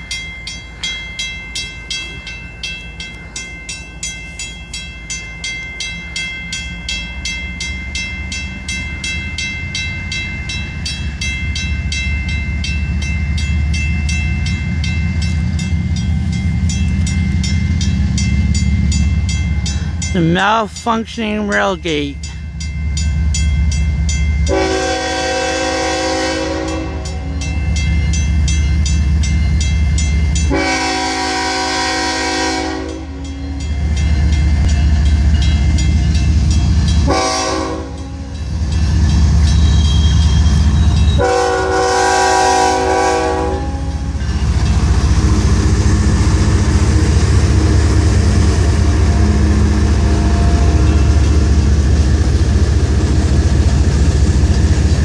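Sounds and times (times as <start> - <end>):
crossing bell dinging: 0.0 - 55.0
locomotive engines and wheels: 0.0 - 55.0
train air horn blasts: 24.5 - 27.2, 30.5 - 33.2, 37.0 - 38.2, 41.2 - 44.0.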